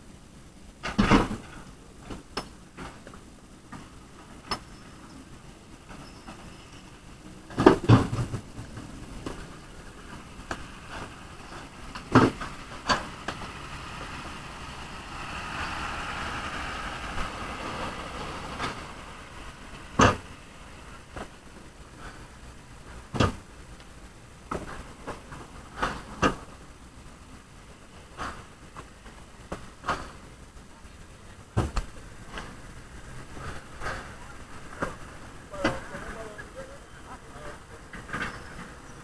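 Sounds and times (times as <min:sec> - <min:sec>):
truck rushing noise: 0:05.3 - 0:23.5, 0:31.3 - 0:39.0.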